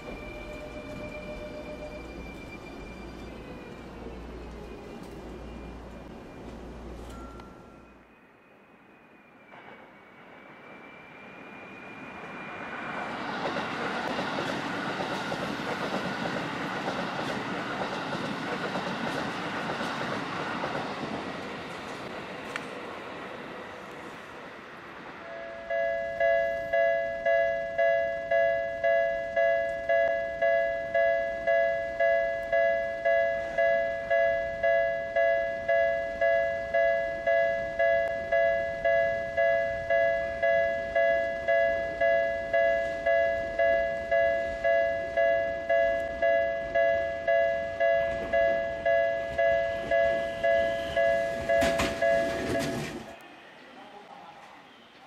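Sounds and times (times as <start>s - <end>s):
level-crossing alarm ringing: 0.0s - 13.8s, 25.2s - 55.0s
train passing: 0.0s - 55.0s.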